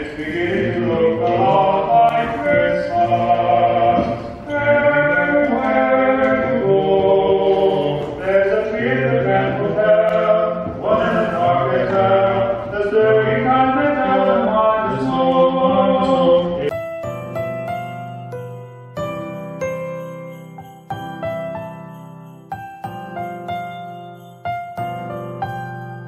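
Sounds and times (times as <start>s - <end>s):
voices singing in harmony: 0.0s - 16.7s
christmas music with jingling chimes: 0.1s - 15.6s, 16.7s - 26.0s.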